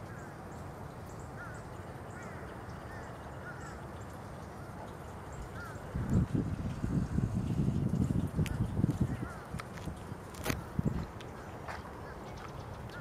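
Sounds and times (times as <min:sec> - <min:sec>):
birds chirping: 0:00.0 - 0:06.5, 0:10.6 - 0:13.0.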